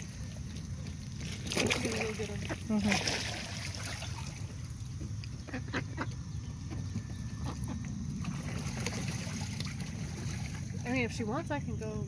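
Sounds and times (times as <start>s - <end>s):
mallard calling: 5.4s - 7.9s.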